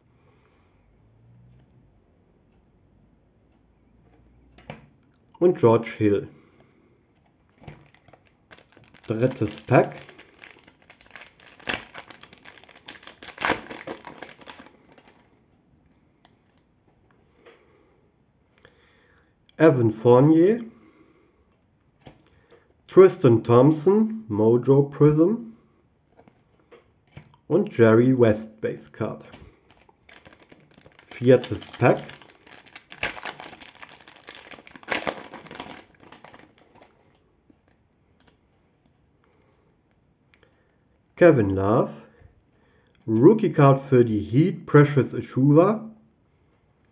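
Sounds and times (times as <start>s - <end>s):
cards being handled: 7.6s - 15.3s, 29.3s - 37.0s
foil wrapper tearing and crinkling: 7.7s - 15.3s, 29.3s - 36.9s.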